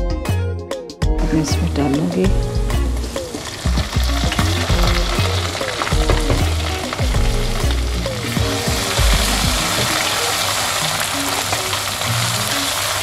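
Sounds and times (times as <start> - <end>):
onions sizzling in hot oil: 1.4 - 13.0.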